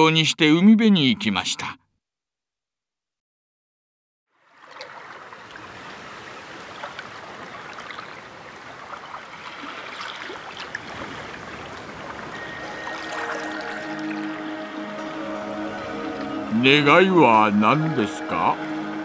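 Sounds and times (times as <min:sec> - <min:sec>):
sea water splashing and rushing: 0:04.4 - 0:19.0
music notes: 0:12.3 - 0:19.0.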